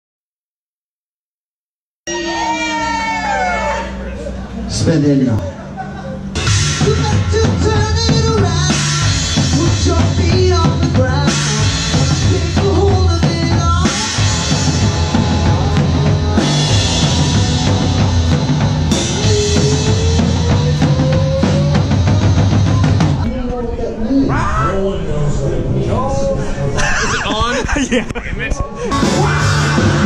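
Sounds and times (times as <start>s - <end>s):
live rock band playing: 6.2s - 23.3s, 28.9s - 30.0s
bass drum and snare hits: 6.5s - 23.3s
cymbal crashes: 14.0s - 20.3s.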